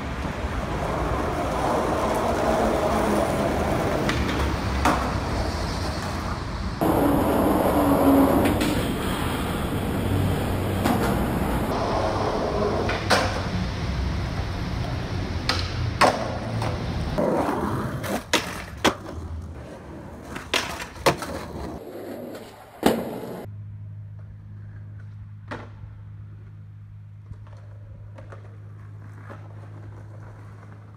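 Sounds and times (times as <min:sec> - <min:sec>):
skateboard wheels rolling on concrete: 0:00.0 - 0:23.5, 0:24.1 - 0:30.9
skateboard pops and clacks: 0:03.9 - 0:05.2, 0:12.8 - 0:13.5, 0:15.4 - 0:19.2, 0:20.2 - 0:21.7, 0:22.8 - 0:23.5.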